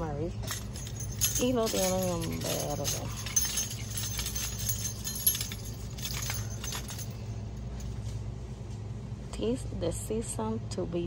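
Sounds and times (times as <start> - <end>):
steady low hum: 0.0 - 11.0
ornaments clinking and jingling: 0.4 - 7.9.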